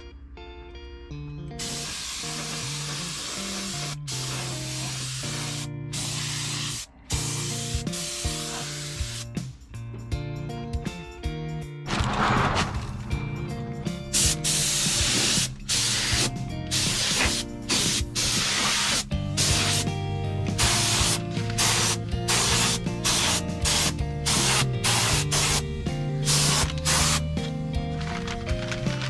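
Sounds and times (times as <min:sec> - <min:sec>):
background music: 0:00.0 - 0:29.0
spray paint hissing: 0:01.6 - 0:09.4, 0:14.1 - 0:20.0, 0:20.6 - 0:27.3.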